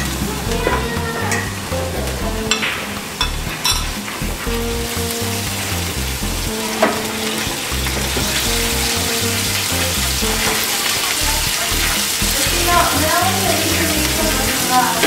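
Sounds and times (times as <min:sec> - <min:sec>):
spoon stirring: 0:02.4 - 0:04.5
seafood sizzling in skillet: 0:02.5 - 0:15.0.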